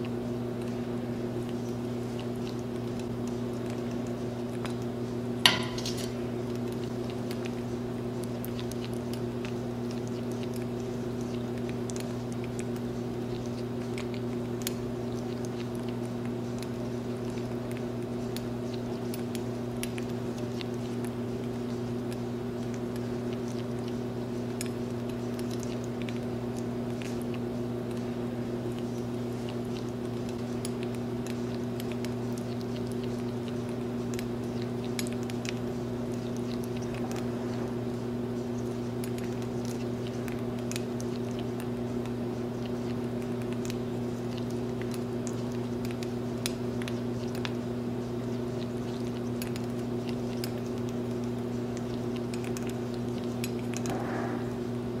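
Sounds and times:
steady low hum: 0.0 - 55.0
spoon clinking: 5.5 - 6.2.

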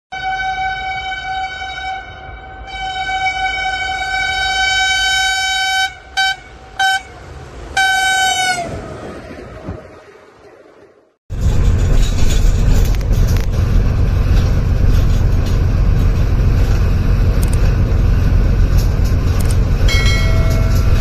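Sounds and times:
locomotive air horn blasts: 0.1 - 8.8
train rumbling past: 0.2 - 21.0.

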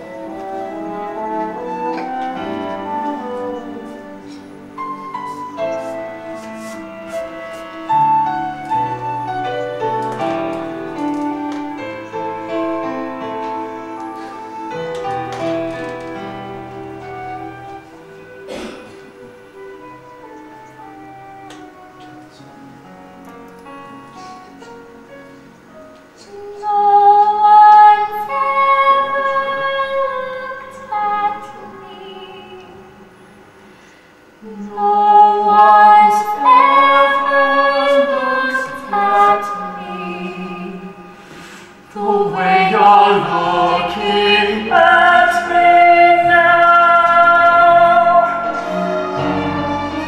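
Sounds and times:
instrumental accompaniment: 0.0 - 50.0
musical theatre singing: 0.0 - 50.0.

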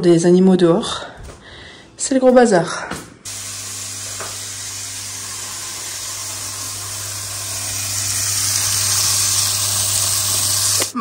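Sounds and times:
power tool hum and hiss: 3.3 - 11.0.

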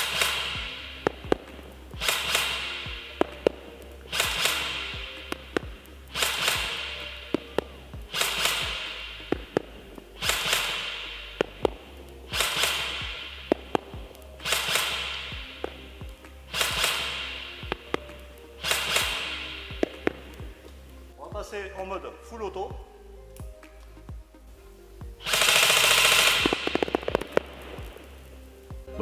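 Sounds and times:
airsoft gun shots clicking: 0.0 - 15.8, 16.5 - 18.0, 18.6 - 20.4, 25.2 - 28.0
background music: 0.0 - 29.0.

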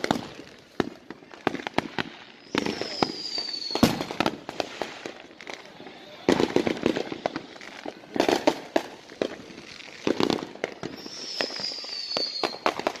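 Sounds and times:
fireworks bangs and crackles: 0.0 - 13.0
firework whistle falling in pitch: 2.4 - 4.1, 10.8 - 13.0.

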